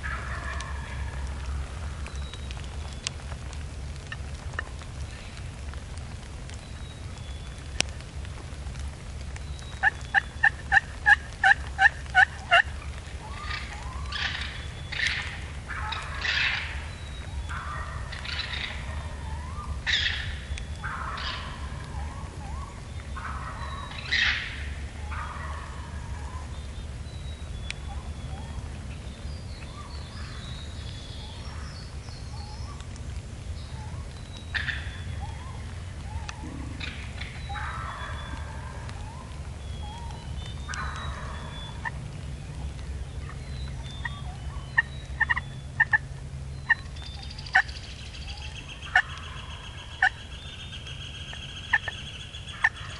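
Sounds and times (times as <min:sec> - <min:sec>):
turkey yelps: 0:00.0 - 0:02.0, 0:09.8 - 0:26.6, 0:33.8 - 0:42.0, 0:43.2 - 0:46.0, 0:46.7 - 0:50.2, 0:51.2 - 0:52.9
turkey gobbling: 0:00.0 - 0:02.2, 0:09.8 - 0:26.6, 0:27.9 - 0:28.7, 0:33.8 - 0:46.0, 0:46.6 - 0:50.3, 0:51.0 - 0:52.9.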